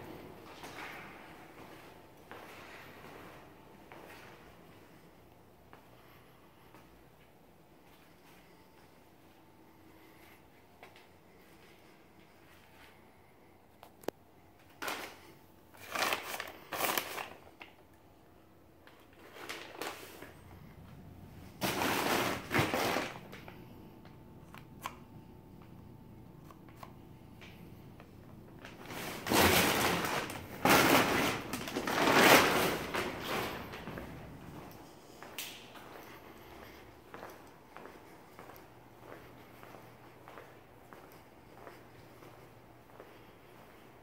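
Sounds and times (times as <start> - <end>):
plastic sheeting rustling: 18.9 - 20.4, 21.4 - 23.4, 28.5 - 34.6.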